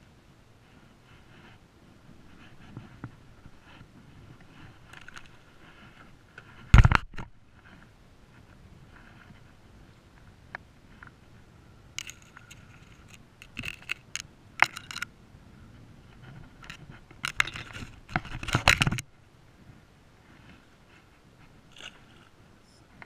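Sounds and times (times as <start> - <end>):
fishing tackle rattling: 4.8 - 5.4, 12.0 - 15.1, 16.6 - 19.0.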